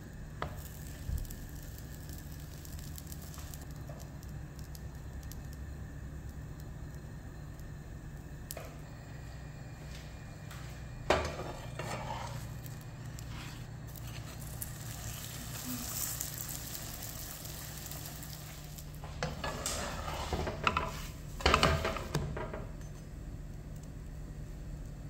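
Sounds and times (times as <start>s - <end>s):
flatbread sizzling in a pan: 0.0s - 25.0s
spatula scraping and tapping pan: 11.0s - 14.7s, 17.9s - 23.0s.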